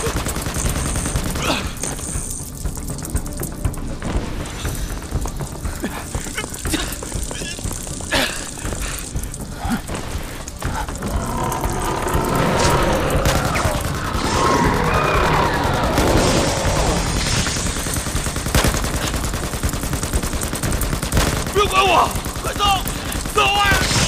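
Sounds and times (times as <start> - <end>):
rapid gunfire-like crackle: 0.0 - 24.0
wavering high screech: 12.0 - 17.5.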